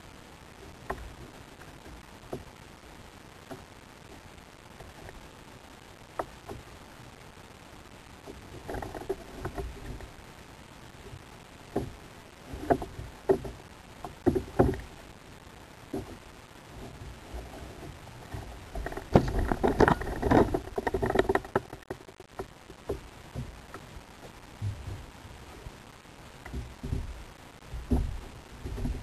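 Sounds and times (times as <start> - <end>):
wind and water hiss: 0.0 - 29.0.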